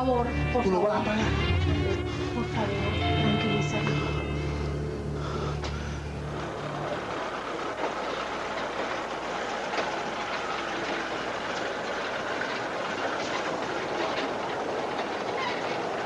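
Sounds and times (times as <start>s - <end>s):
low music chord: 0.0s - 7.2s
car driving on rough street: 4.0s - 16.0s
faint clicks and rattles: 5.6s - 16.0s.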